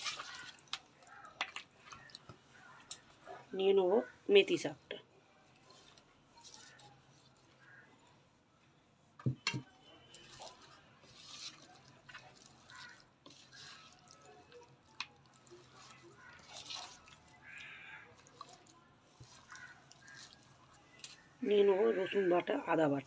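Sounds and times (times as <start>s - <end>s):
spoon squishing food in bowl: 0.0s - 3.3s, 5.4s - 7.9s, 9.3s - 21.4s.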